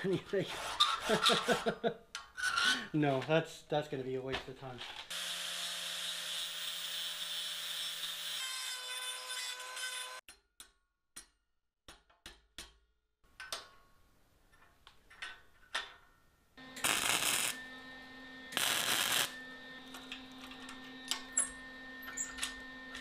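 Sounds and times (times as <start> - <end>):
angle grinder grinding steel: 5.1 - 10.2, 16.6 - 23.0.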